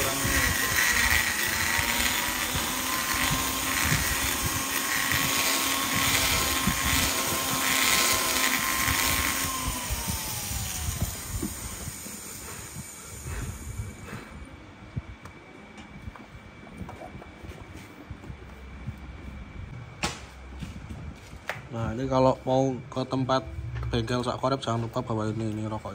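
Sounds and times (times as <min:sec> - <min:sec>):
rotary grinder whining: 0:00.0 - 0:14.5.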